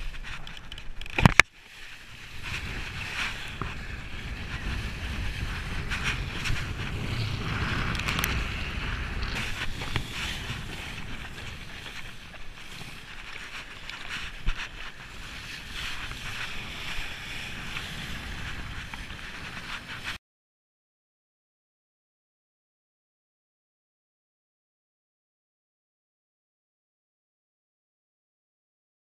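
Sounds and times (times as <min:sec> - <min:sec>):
water hissing under kiteboard: 0:00.0 - 0:20.2
wind rushing: 0:02.1 - 0:20.2.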